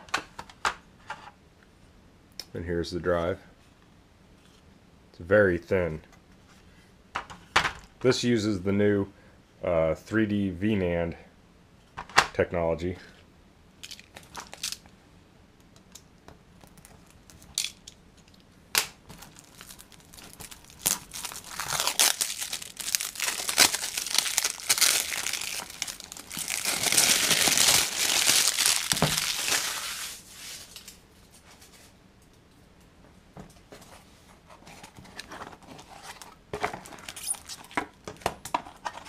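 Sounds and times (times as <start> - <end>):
plastic shrink wrap tearing: 19.1 - 31.0, 36.9 - 37.8.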